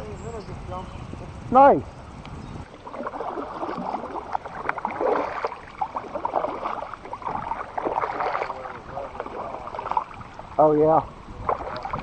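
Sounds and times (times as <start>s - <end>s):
water splashing around a kayak: 2.6s - 12.0s.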